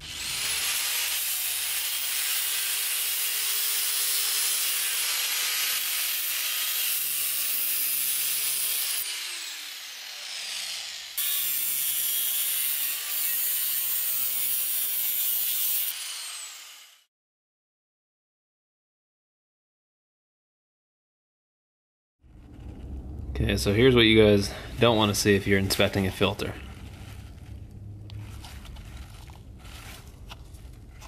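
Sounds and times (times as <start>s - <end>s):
angle grinder cutting thin metal: 0.0s - 17.1s.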